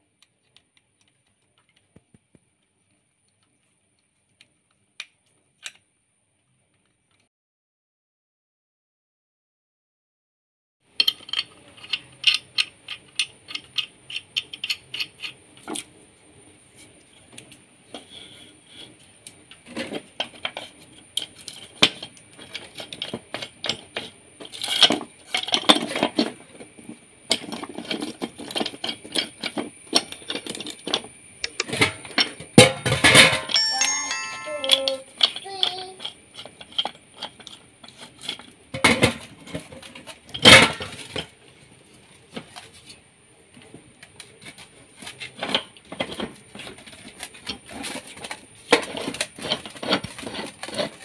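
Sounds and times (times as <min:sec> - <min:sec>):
metallic clicks and clinks: 0:33.4 - 0:36.1
notification jingle: 0:33.5 - 0:35.2.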